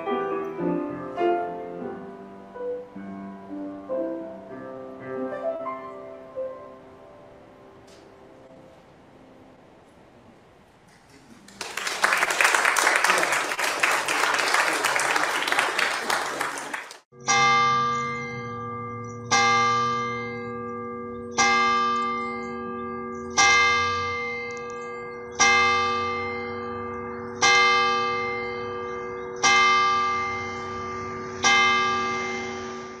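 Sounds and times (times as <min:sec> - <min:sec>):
church bell tolling: 0:17.2 - 0:33.0.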